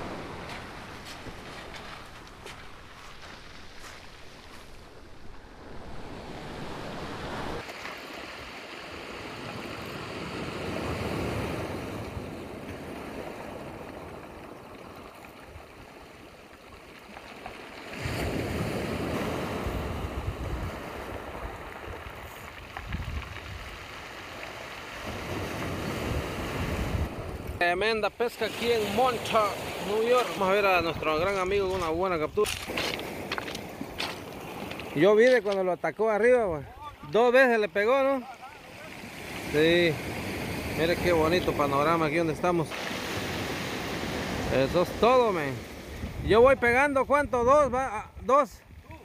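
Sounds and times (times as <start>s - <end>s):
surf breaking on stony beach: 0.0s - 47.0s
wind buffeting microphone: 18.2s - 24.0s, 25.1s - 27.6s, 45.6s - 49.0s.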